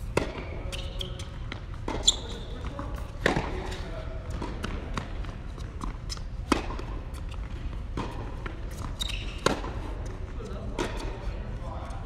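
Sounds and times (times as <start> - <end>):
tennis ball struck by rackets: 0.0 - 7.2, 7.9 - 9.9
tennis ball bouncing on court: 0.0 - 11.2.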